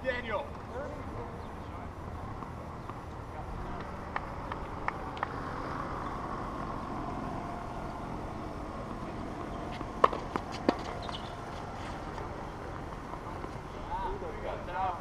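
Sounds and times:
low outdoor hum: 0:00.0 - 0:15.0
tennis balls struck by rackets: 0:02.2 - 0:06.9, 0:07.7 - 0:13.7.

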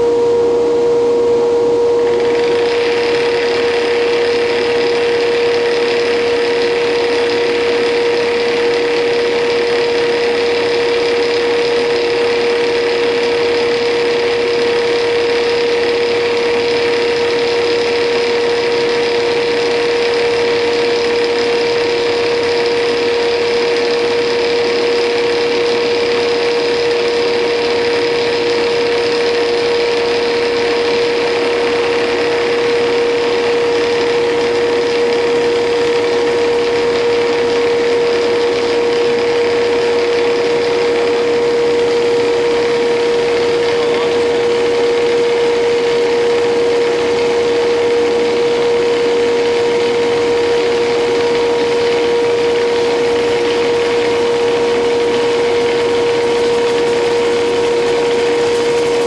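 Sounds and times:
lathe machine whine: 0:00.0 - 0:59.0
hiss of cutting wood: 0:43.3 - 0:45.4.

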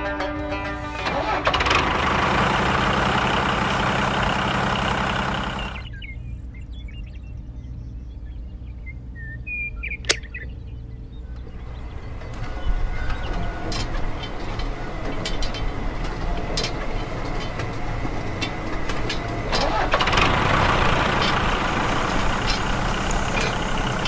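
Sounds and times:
faint bird chirps: 0:05.4 - 0:19.4
sharp click: 0:10.0 - 0:10.3.

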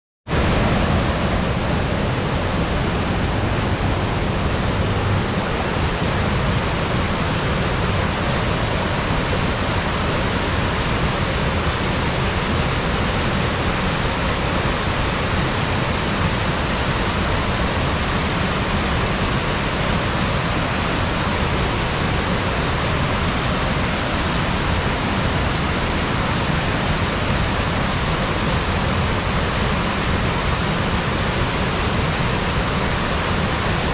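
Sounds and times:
creek water rushing over stones: 0:00.3 - 0:33.9.

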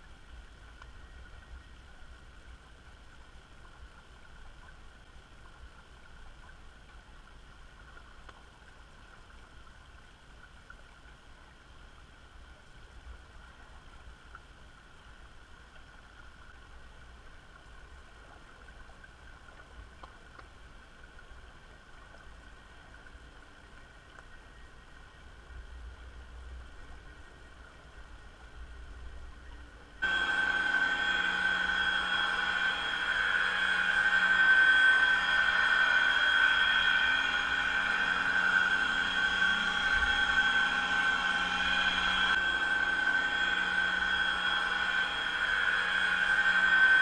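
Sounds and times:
thin constant whine: 0:00.0 - 0:47.0
underwater ship rumble: 0:28.8 - 0:47.0.

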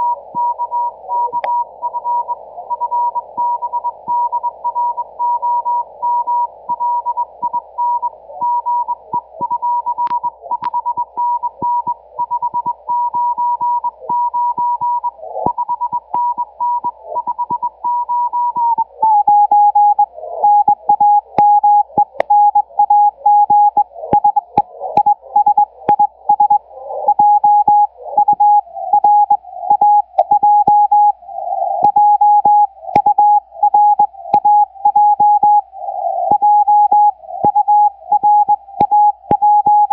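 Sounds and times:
radio static crackles: 0:07.4 - 0:39.9
morse code tone: 0:31.8 - 0:35.6, 0:36.2 - 0:39.9.

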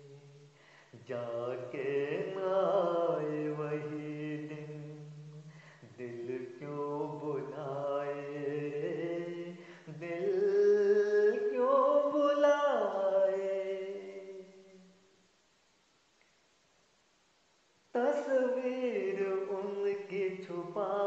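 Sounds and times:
man singing long notes: 0:00.0 - 0:15.1, 0:18.0 - 0:21.0.

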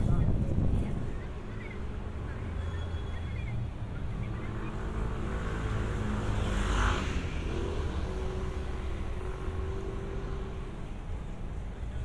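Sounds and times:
wind on microphone: 0:00.0 - 0:01.4
low rumble of traffic: 0:00.0 - 0:12.0.

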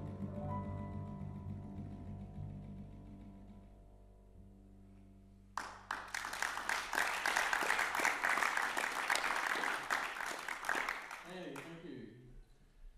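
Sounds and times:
audience applause: 0:05.6 - 0:11.7.

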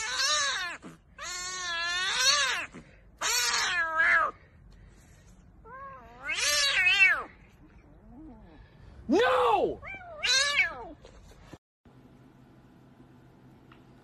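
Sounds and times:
kitten meowing: 0:00.0 - 0:04.4, 0:05.7 - 0:07.3, 0:09.8 - 0:10.9.

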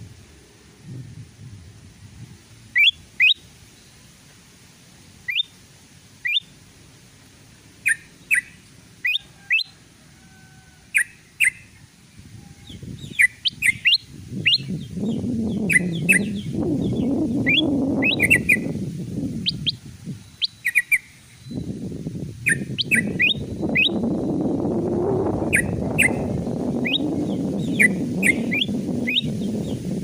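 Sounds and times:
low rushing noise: 0:00.0 - 0:09.1, 0:09.8 - 0:30.0
bird chirps sharp rising: 0:02.7 - 0:04.0, 0:05.3 - 0:05.6, 0:06.2 - 0:06.5, 0:07.8 - 0:09.7, 0:10.9 - 0:11.8, 0:12.6 - 0:24.5, 0:25.3 - 0:29.9.

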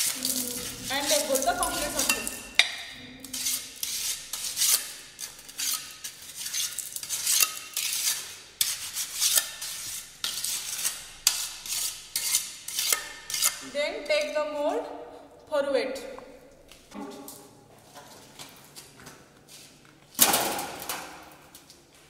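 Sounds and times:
trowel scraping concrete: 0:00.0 - 0:02.6, 0:03.2 - 0:13.7.

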